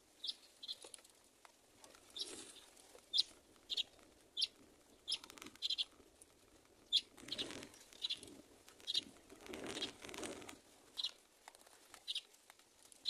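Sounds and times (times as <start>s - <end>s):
rustling: 0.8s - 13.0s
baby bird chirping: 3.1s - 4.5s, 5.1s - 5.8s.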